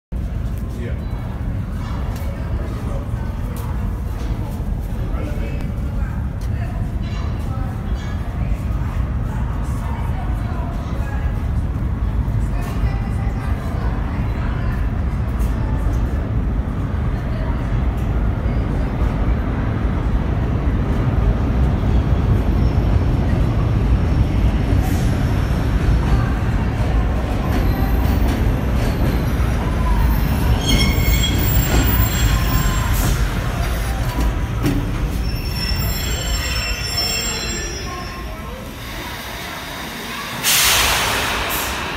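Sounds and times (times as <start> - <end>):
train wheels rumbling on rails: 0.2 - 41.9
wheel and brake squeals: 30.0 - 38.4.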